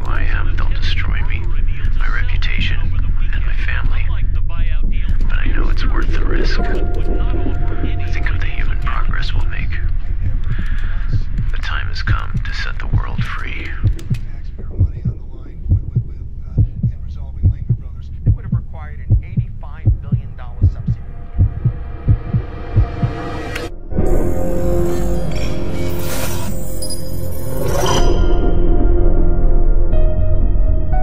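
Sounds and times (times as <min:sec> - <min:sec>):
heartbeat effect: 0:00.0 - 0:25.5
low steady hum: 0:00.0 - 0:25.7
deep low rumble: 0:00.0 - 0:26.0
movie trailer music: 0:00.0 - 0:31.0
wavering electronic tones: 0:05.2 - 0:11.5.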